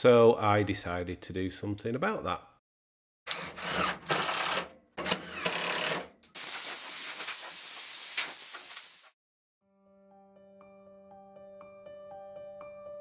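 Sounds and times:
compressed air hissing: 6.4 - 9.2.

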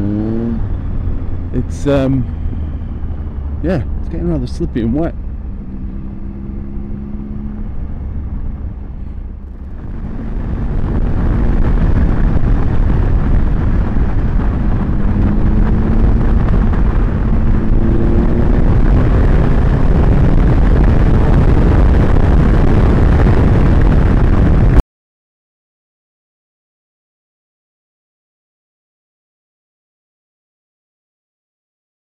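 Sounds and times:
motorcycle engine accelerating: 0.0 - 24.8
wind rushing on microphone: 0.0 - 24.8.

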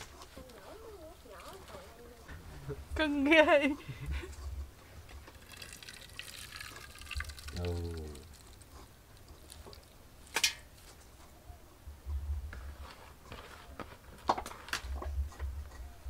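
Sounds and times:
wet squishing: 5.0 - 10.0.

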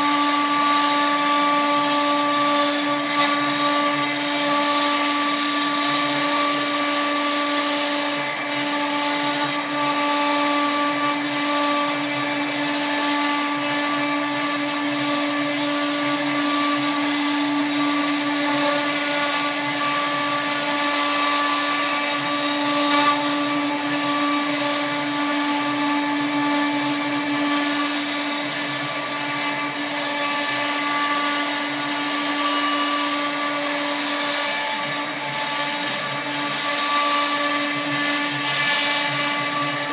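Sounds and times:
router spindle whining: 0.0 - 39.9.

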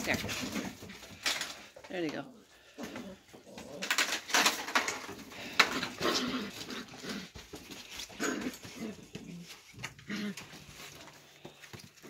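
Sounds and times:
puppies yipping and growling: 5.6 - 11.4.

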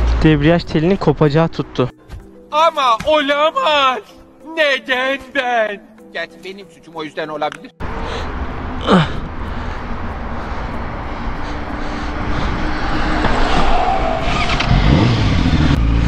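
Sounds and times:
motorcycle engine drone: 7.8 - 16.0
wind rush: 9.6 - 15.7
brief falling tone: 12.7 - 15.4.

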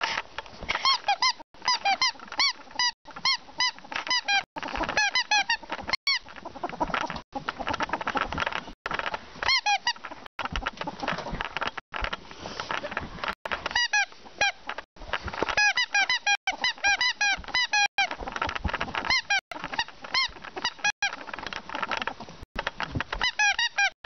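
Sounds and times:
ferret chirping clucks: 0.8 - 8.7, 15.5 - 22.0.

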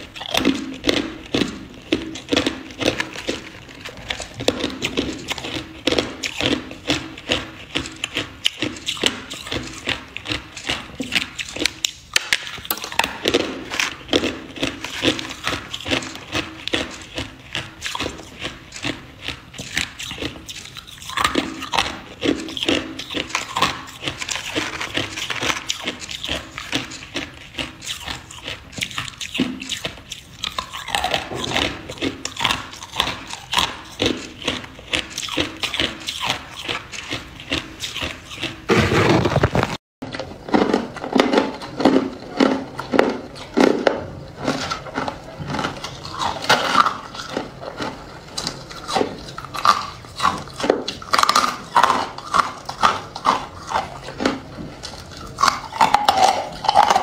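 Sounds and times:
ice being crunched in mouth: 0.0 - 39.8.

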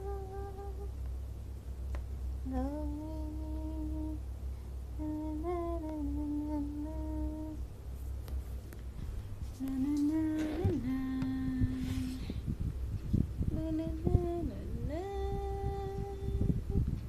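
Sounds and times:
woman humming: 0.0 - 0.9, 9.6 - 12.2
steady low hum: 0.0 - 17.0.

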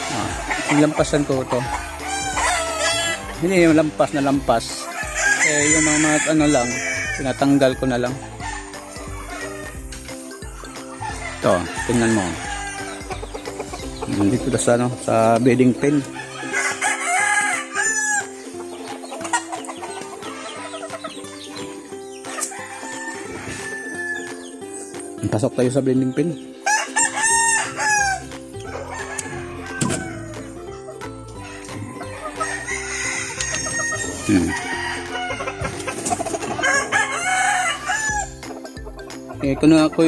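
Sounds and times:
background music with low notes: 0.0 - 40.0
chickens clucking: 0.0 - 40.0
rooster crowing: 1.7 - 3.2, 4.9 - 9.9, 11.0 - 13.0, 16.2 - 18.3, 22.5 - 24.3, 26.6 - 30.5, 31.4 - 35.8, 36.6 - 38.4.

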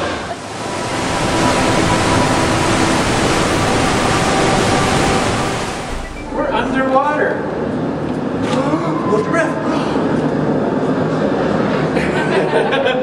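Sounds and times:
waterfall rushing and splashing: 0.0 - 6.3.

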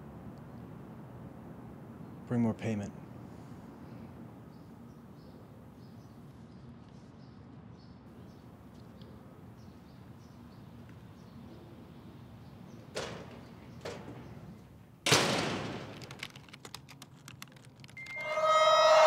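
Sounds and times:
clicks and ticks: 15.9 - 18.4.

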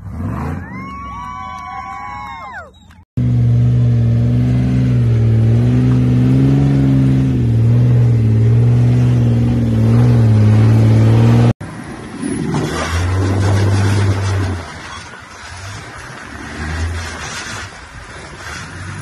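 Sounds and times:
quieter buggy engine: 0.0 - 19.0
engine working hard under load: 2.9 - 19.0.

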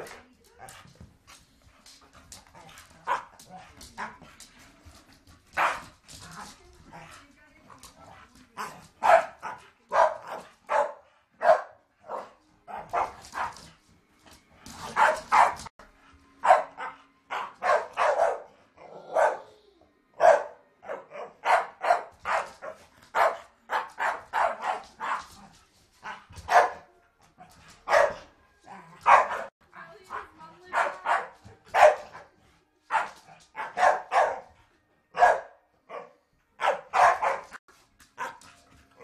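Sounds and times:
dogs barking: 2.3 - 4.3, 5.6 - 6.0, 8.5 - 13.6, 14.8 - 15.7, 16.4 - 19.5, 20.2 - 26.9, 27.8 - 32.3, 32.9 - 37.6, 38.2 - 39.0.

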